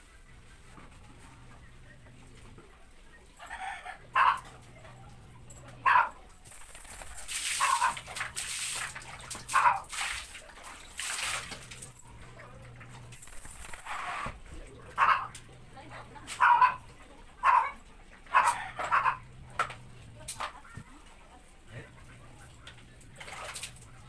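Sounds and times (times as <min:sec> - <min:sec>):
dog barking: 0:03.4 - 0:06.3, 0:07.5 - 0:08.2, 0:09.4 - 0:09.9, 0:14.9 - 0:15.5, 0:16.3 - 0:19.3
water splashing on tiled floor: 0:05.4 - 0:15.5, 0:18.5 - 0:24.0.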